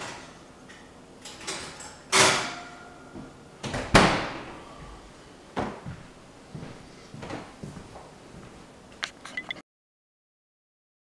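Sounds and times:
oven door banging shut: 1.6s - 2.8s, 3.6s - 4.6s.

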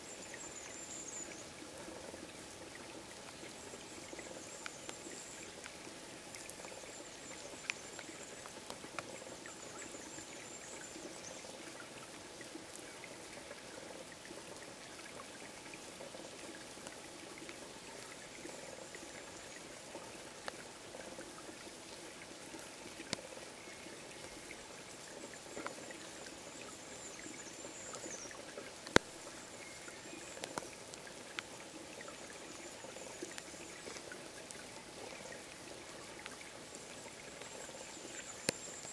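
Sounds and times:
steady rain falling: 0.0s - 38.9s
water drips and taps: 0.2s - 38.9s.

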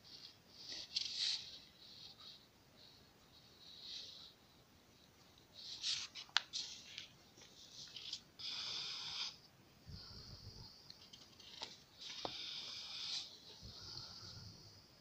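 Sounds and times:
paper rustling and crinkling: 5.7s - 8.3s, 11.1s - 12.3s.

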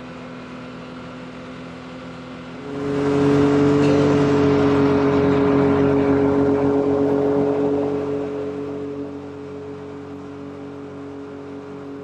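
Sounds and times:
vehicle engine revving: 2.5s - 12.0s.

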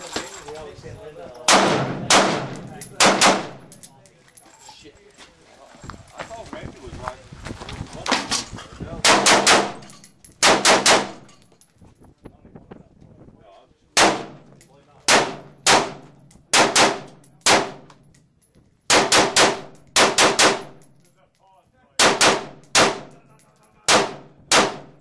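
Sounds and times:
rifle gunshots echoing: 1.5s - 3.8s, 9.0s - 11.3s, 14.0s - 14.5s, 15.1s - 17.9s, 18.9s - 20.8s, 22.0s - 23.2s, 23.9s - 25.0s.

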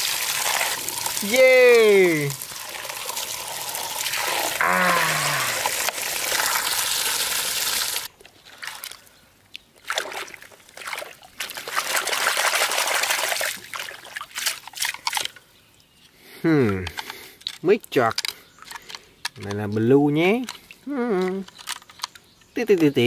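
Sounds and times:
water pouring into a puddle: 0.0s - 9.0s, 9.9s - 15.3s
hand sloshing water in a puddle: 9.8s - 15.3s.

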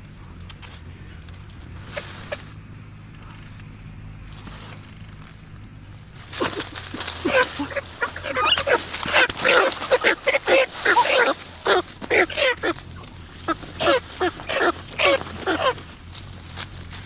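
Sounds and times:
poultry squawking: 0.5s - 2.6s, 6.3s - 16.1s.

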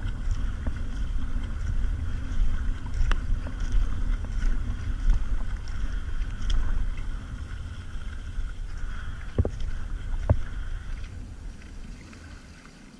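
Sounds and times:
low rumble: 0.0s - 12.6s
paddle splashing water: 0.0s - 12.9s.

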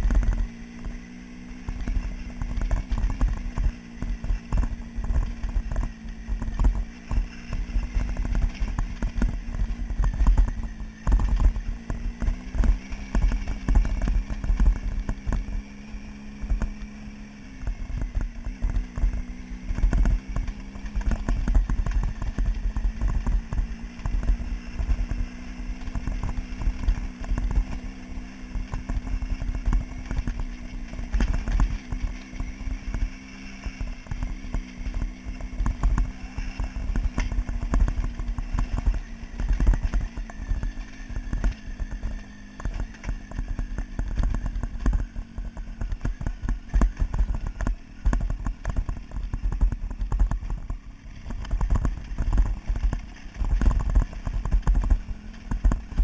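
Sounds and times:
wind rumble on microphone: 0.0s - 1.0s, 1.6s - 27.8s, 28.6s - 56.0s
motorcycle engine running: 0.0s - 56.0s
stones knocking and rattling: 17.7s - 56.0s.

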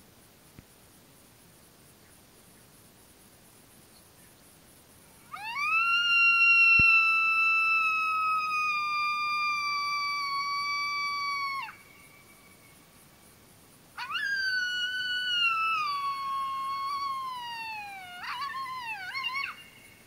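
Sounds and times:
coyote howl: 5.3s - 12.3s, 14.0s - 20.0s.

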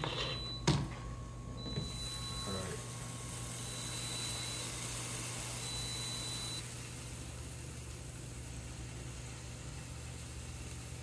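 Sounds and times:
indoor grill hissing: 0.0s - 11.0s
low steady hum: 0.0s - 11.0s
faint high-pitched tone: 1.5s - 4.8s.

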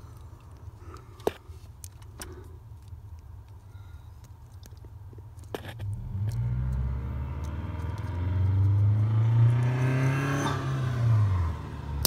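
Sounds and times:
vehicle engine passing by: 5.9s - 12.0s.

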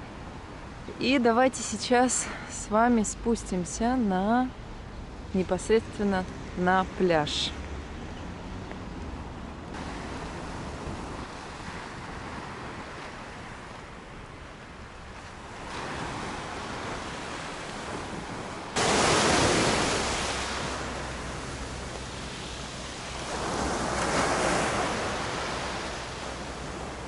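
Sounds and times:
surf on a pebble beach: 9.8s - 27.0s
wave breaking loudly: 18.8s - 21.8s.

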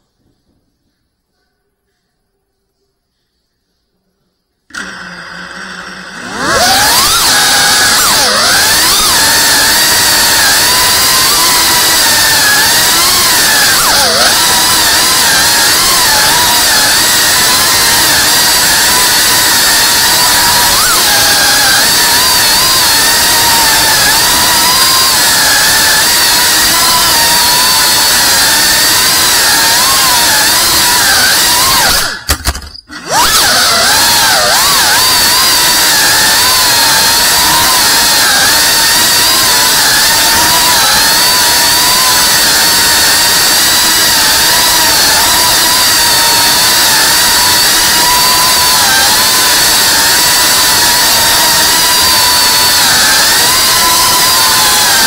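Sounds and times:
drone motors whining: 4.7s - 55.0s.

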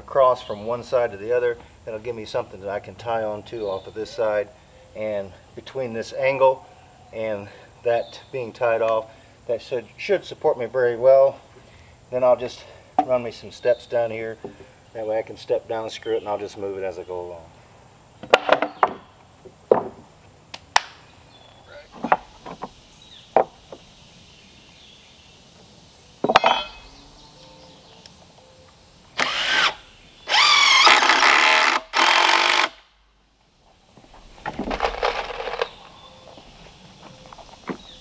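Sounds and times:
wooden boards knocking: 18.2s - 19.0s, 19.7s - 20.1s, 22.0s - 23.8s
cordless drill driving screws: 29.2s - 32.8s.

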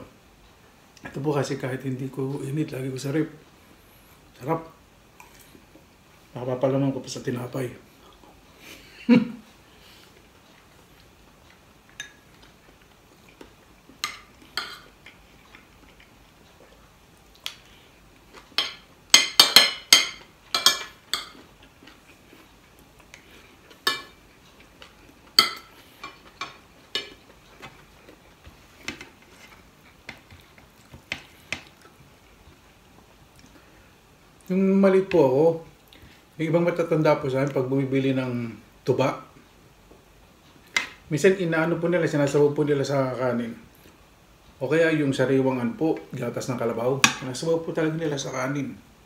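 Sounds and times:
cutlery clinking on plate: 18.6s - 21.4s.

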